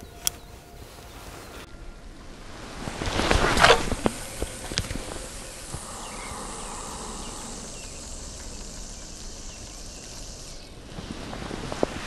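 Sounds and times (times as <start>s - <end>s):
fishing line running off reel: 3.2s - 11.2s.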